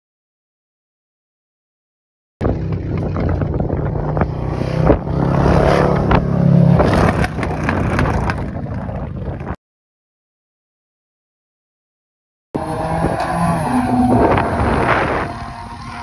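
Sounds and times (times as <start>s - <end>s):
engine running: 2.4s - 9.6s, 12.6s - 16.0s
wind on microphone: 2.4s - 9.6s, 12.8s - 16.0s.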